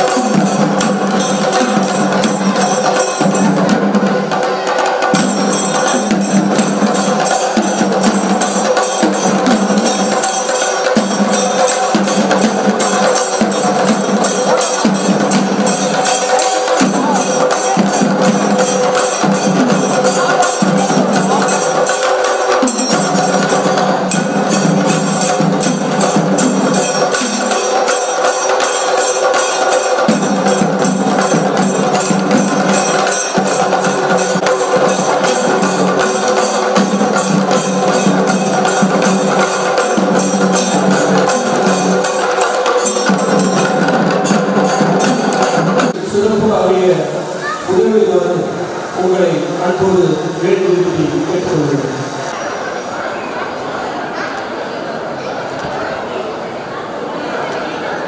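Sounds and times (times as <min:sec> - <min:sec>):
barrel drums beaten with sticks: 0:00.0 - 0:46.4.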